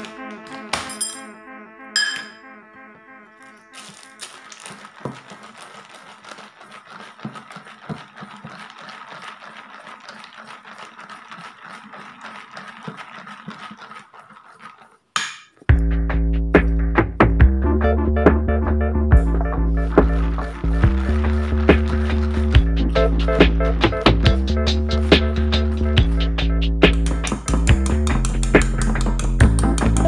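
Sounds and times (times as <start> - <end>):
background music: 0.0 - 4.6, 15.7 - 30.0
whisk stirring batter in metal bowl: 3.8 - 15.2, 19.3 - 30.0.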